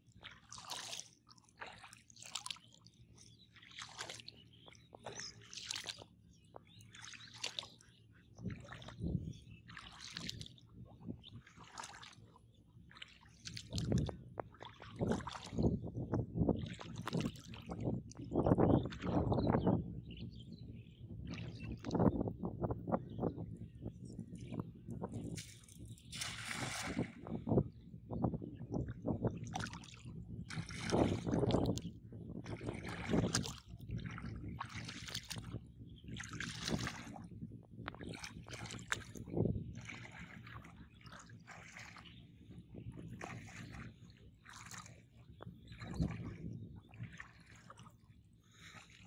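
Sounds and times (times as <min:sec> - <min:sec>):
footsteps splashing through water: 0:00.1 - 0:02.8, 0:03.6 - 0:07.8, 0:08.5 - 0:10.7, 0:11.3 - 0:12.3, 0:13.0 - 0:15.7, 0:16.6 - 0:19.4, 0:25.1 - 0:27.6, 0:29.4 - 0:37.2, 0:37.9 - 0:42.1, 0:43.1 - 0:48.0, 0:48.6 - 0:49.0
net splashing into water: 0:25.3 - 0:27.3, 0:29.6 - 0:31.4.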